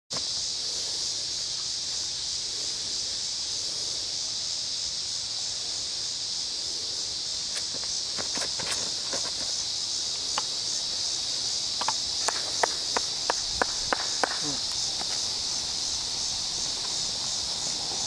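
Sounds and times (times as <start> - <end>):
cicadas droning: 0.1 - 18.0
footsteps on concrete: 7.5 - 9.7, 11.8 - 17.6.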